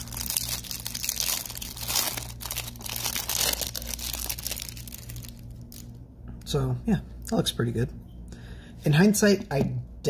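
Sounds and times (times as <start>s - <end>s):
plastic packaging crinkling: 0.0s - 6.0s.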